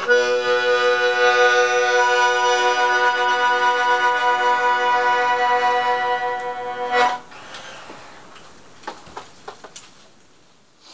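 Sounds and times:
accordion chord: 0.0s - 7.3s.

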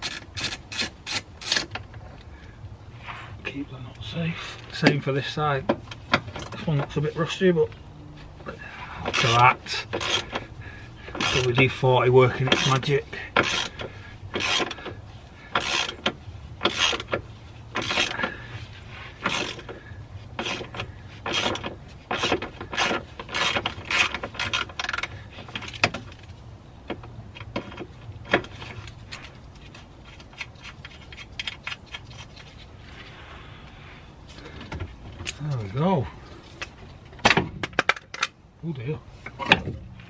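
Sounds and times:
ratchet wrench clicking: 0.0s - 1.7s, 9.1s - 10.4s, 12.5s - 14.9s, 15.5s - 17.2s, 17.8s - 18.3s.

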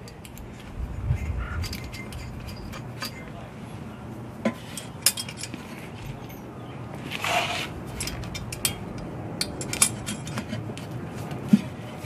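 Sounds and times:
metal scraping: 4.4s - 10.9s.

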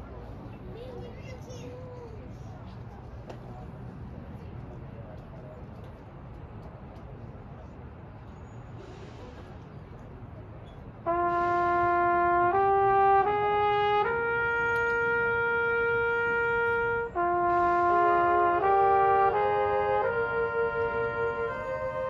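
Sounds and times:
brass playing slow melody: 11.0s - 22.0s.

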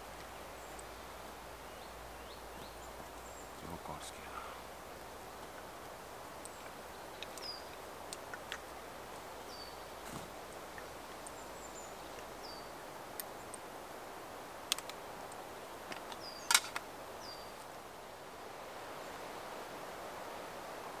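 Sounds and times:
bird chirping: 0.0s - 13.6s, 16.0s - 17.6s.

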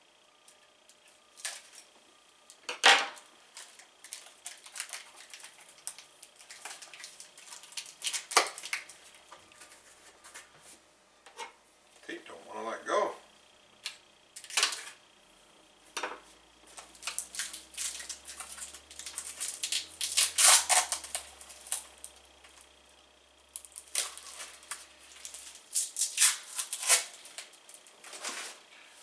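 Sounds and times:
packaging crinkling and rustling: 3.5s - 10.5s, 14.4s - 15.0s, 16.7s - 22.2s, 23.6s - 28.7s.

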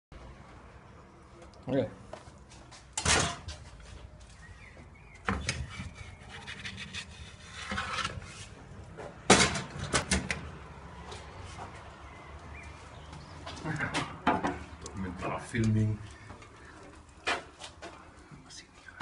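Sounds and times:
pizza peel scraping in oven: 5.7s - 8.6s.

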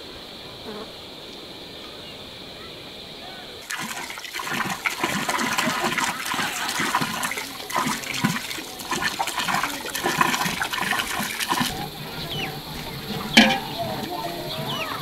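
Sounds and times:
water running and splashing: 3.6s - 15.0s.

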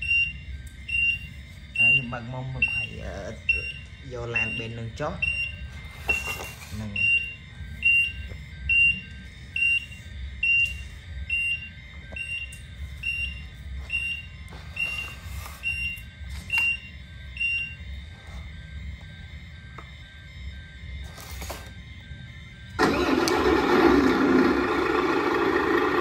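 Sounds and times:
reversing beeper: 0.0s - 26.0s
low simulated diesel rumble: 21.8s - 26.0s.

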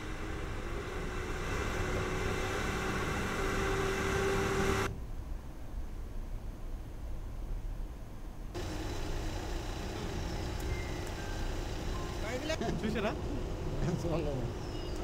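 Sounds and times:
lorry engine running: 0.0s - 4.9s, 8.6s - 15.0s
faint low rumble: 0.0s - 15.0s.

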